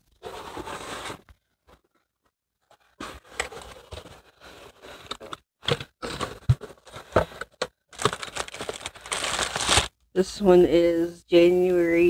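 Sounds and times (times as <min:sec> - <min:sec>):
plastic bags crinkling: 0:07.9 - 0:09.9
cardboard flaps scraping: 0:08.0 - 0:09.9.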